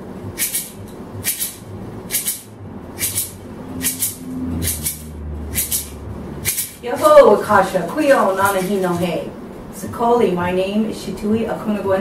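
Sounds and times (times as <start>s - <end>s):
low steady hum: 0.0s - 12.0s
gourd rattle shaken: 8.2s - 9.1s.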